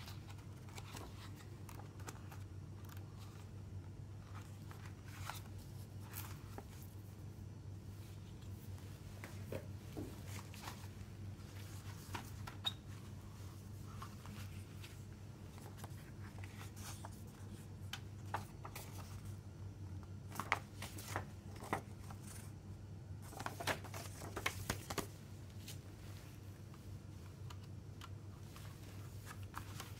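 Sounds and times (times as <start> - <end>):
paper rustling and tapping: 23.2 - 25.2.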